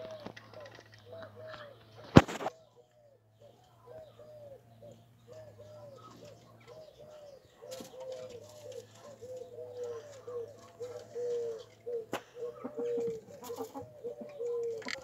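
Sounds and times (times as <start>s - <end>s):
pigeons cooing: 0.0s - 15.0s.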